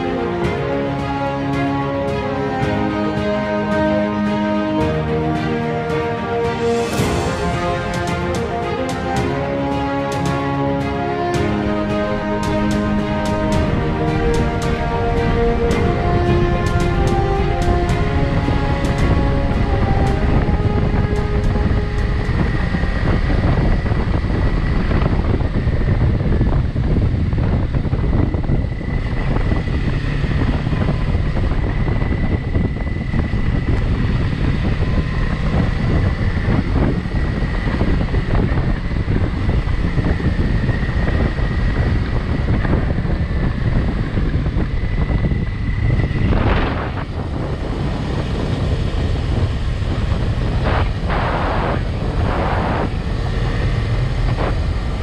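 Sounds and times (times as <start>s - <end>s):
wind buffeting microphone: 11.5s - 55.0s.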